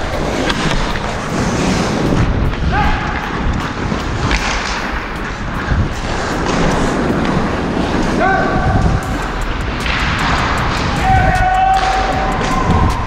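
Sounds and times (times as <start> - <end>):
skate blades scraping ice: 0.0 - 13.0
wind noise over microphone: 0.0 - 13.0
hockey sticks and puck knocks: 3.1 - 5.0, 9.8 - 12.8.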